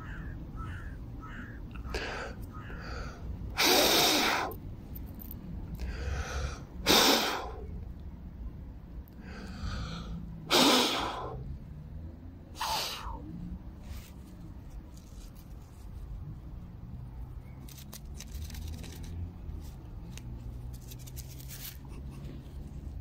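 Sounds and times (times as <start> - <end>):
crows cawing: 0.0 - 3.3.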